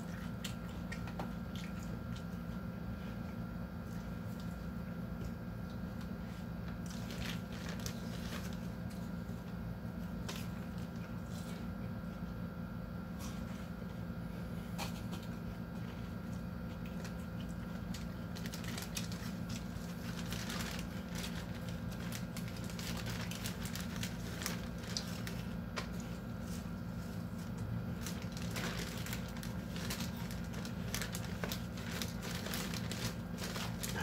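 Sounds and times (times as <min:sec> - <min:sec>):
steady low hum: 0:00.0 - 0:34.0
plastic bag crinkling: 0:06.7 - 0:09.1, 0:17.0 - 0:34.0.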